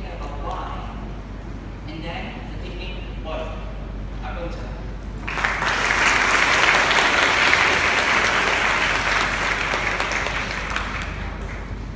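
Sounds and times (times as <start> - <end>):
audience applauding: 5.2 - 11.9.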